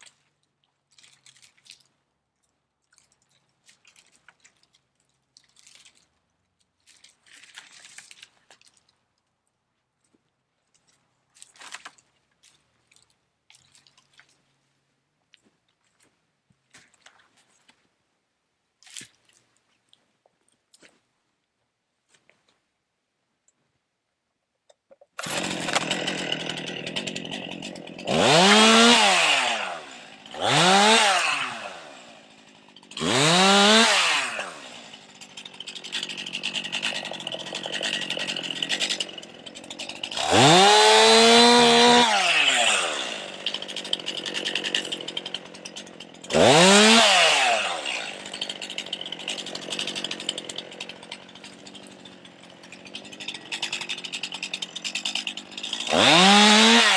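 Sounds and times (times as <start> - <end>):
chainsaw revving and idling: 25.2 - 56.9.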